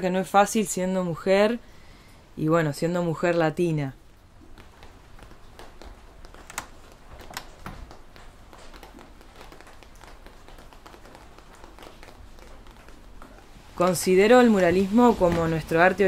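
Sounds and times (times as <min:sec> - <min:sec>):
wet clay squishing: 0:04.2 - 0:16.0.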